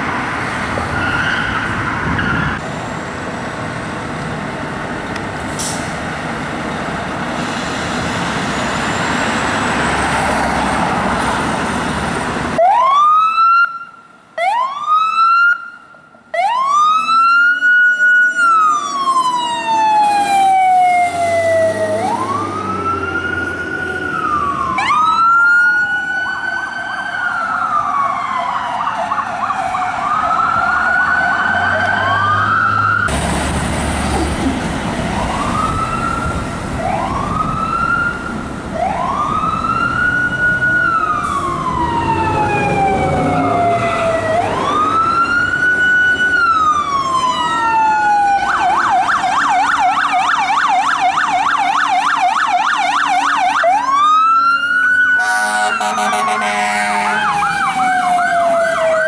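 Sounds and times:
sirens wailing and yelping: 0:00.0 - 0:04.2, 0:08.0 - 0:33.2, 0:34.0 - 0:59.0.

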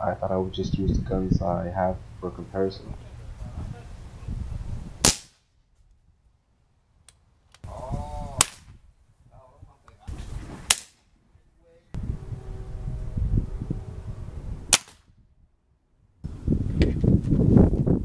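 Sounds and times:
air rifle shots: 0:05.0 - 0:05.5, 0:08.4 - 0:08.7, 0:10.6 - 0:11.0, 0:14.7 - 0:15.1.

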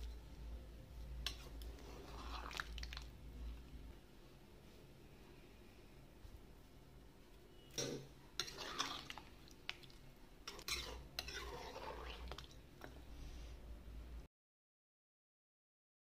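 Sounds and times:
wet stirring: 0:00.9 - 0:03.7, 0:08.4 - 0:13.1.

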